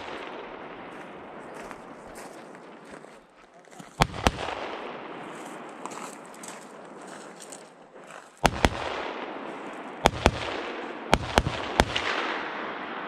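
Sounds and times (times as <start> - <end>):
rifle shots with echo: 0.0 - 2.6, 4.0 - 7.0, 8.4 - 13.0.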